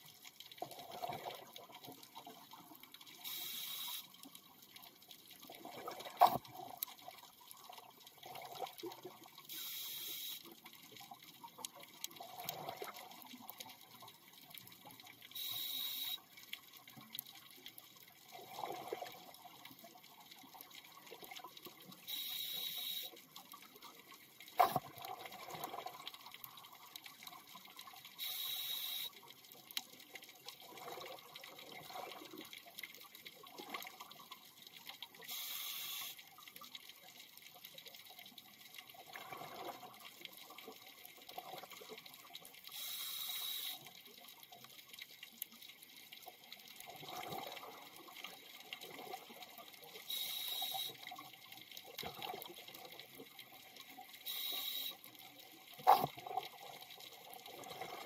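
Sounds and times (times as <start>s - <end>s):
regulator inhalation hiss: 3.2s - 4.1s, 9.5s - 10.5s, 15.4s - 16.2s, 22.1s - 23.2s, 28.2s - 29.1s, 35.3s - 36.2s, 42.7s - 43.8s, 50.1s - 51.0s, 54.2s - 55.0s.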